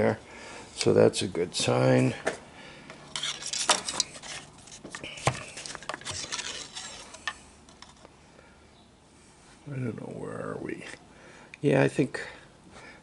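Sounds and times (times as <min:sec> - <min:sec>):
plastic dipstick clicking and scraping: 0:03.2 - 0:08.1.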